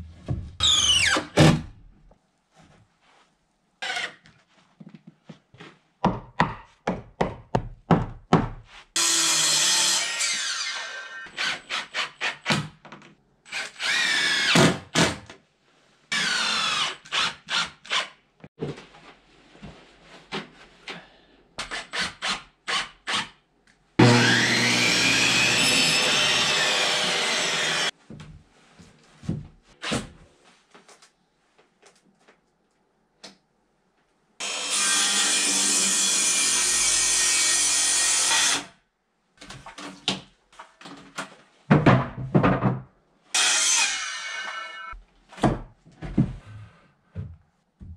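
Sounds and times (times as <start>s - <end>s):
circular saw cutting boards: 9.0s - 12.2s, 24.0s - 27.9s, 34.4s - 38.6s, 43.3s - 45.0s
cordless drill driving screws: 13.5s - 14.7s.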